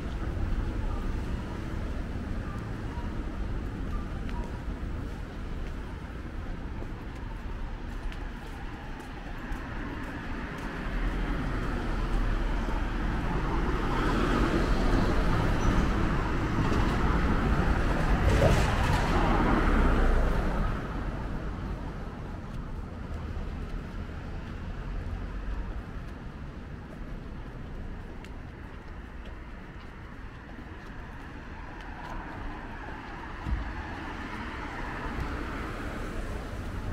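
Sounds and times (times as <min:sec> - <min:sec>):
street noise: 0:00.0 - 0:36.9.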